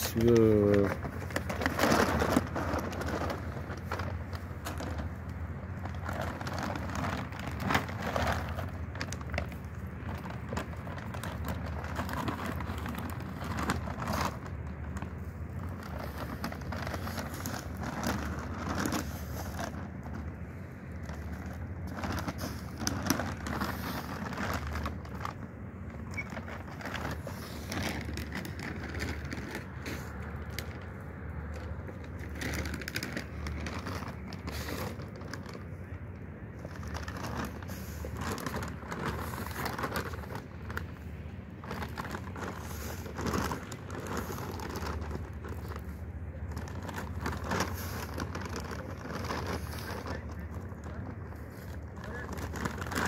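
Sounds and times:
dry cat food pouring: 0.0s - 20.1s, 20.9s - 25.4s, 36.6s - 53.0s
plastic bag rustling: 0.0s - 53.0s
steady low rumble: 0.0s - 53.0s.

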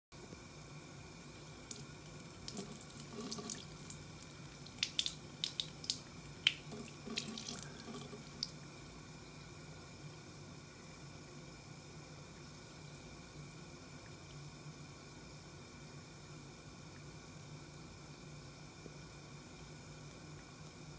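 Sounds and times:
water running from faucet into sink: 1.5s - 8.6s
kitten drinking splashes: 1.6s - 8.6s.

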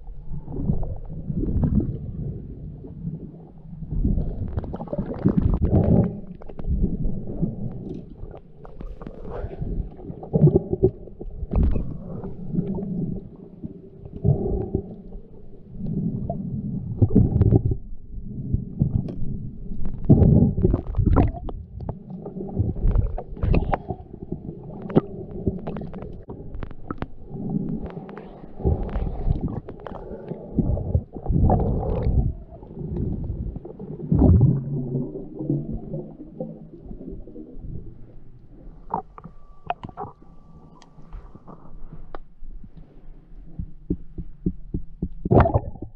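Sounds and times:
muffled underwater rumbles and gurgling: 0.0s - 45.9s
faint clicks: 38.9s - 45.2s.

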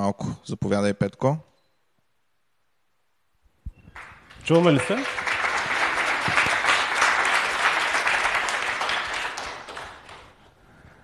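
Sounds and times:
audience applauding: 3.9s - 10.5s.

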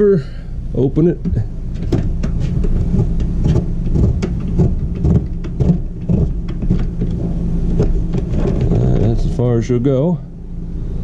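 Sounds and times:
low mechanical hum: 0.0s - 11.0s
roof vent crank clicking: 1.2s - 9.5s.

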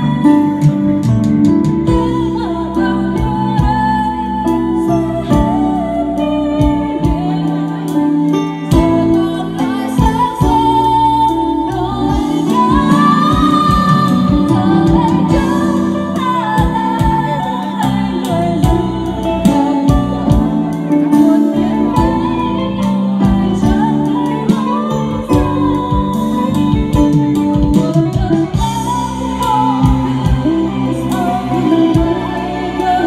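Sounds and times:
electric bass guitar: 0.0s - 33.0s
keyboard: 0.0s - 33.0s
woman singing into a microphone: 0.0s - 33.0s
electronic drum pads beat: 11.8s - 33.0s.

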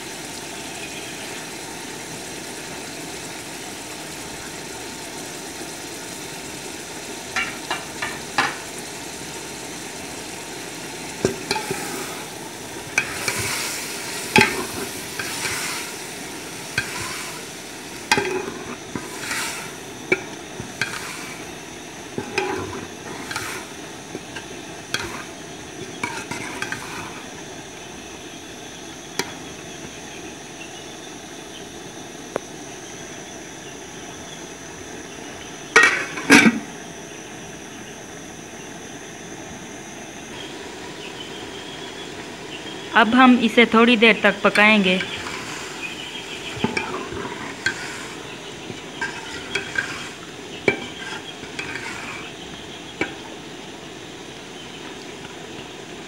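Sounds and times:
steady background hum: 0.0s - 56.0s
spoon stirring vegetables in metal pot: 11.2s - 27.5s, 44.4s - 53.4s
spoon knocking against pot: 18.1s - 19.0s, 50.7s - 51.9s.

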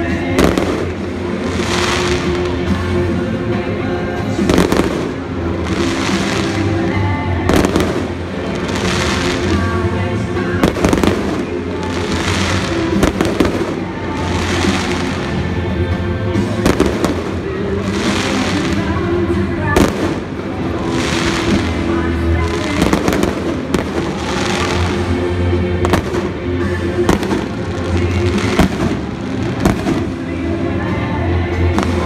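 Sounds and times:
fireworks crackling: 0.0s - 32.0s
music playing: 0.0s - 32.0s
fireworks bangs: 0.2s - 3.0s, 4.4s - 15.6s, 16.4s - 30.4s.

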